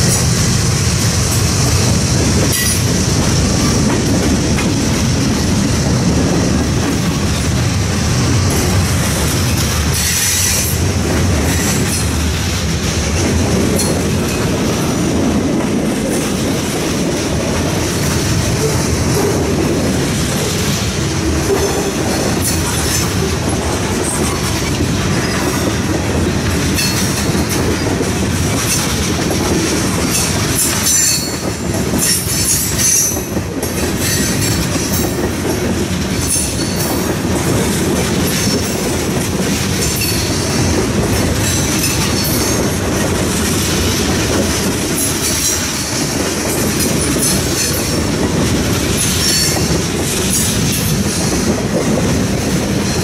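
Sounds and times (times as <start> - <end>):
train wheels clattering over rail joints: 0.0 - 53.0.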